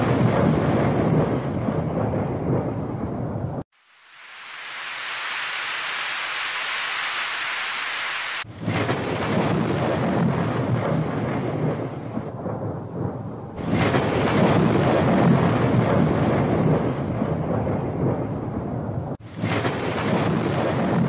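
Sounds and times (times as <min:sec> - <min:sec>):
deep thunder-like rumble: 0:00.0 - 0:03.6, 0:08.5 - 0:21.0
rain-like hiss: 0:03.7 - 0:12.3, 0:19.2 - 0:21.0.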